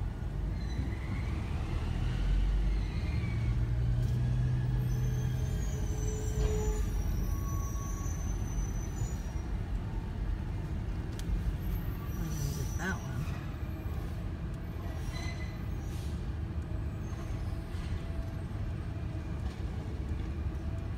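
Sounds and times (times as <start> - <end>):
thin high squeal: 4.8 - 9.5.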